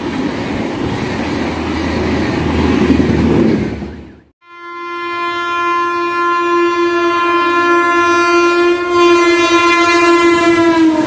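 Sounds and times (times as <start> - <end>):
train rushing past: 0.0 - 4.3
train horn blast: 4.4 - 11.0.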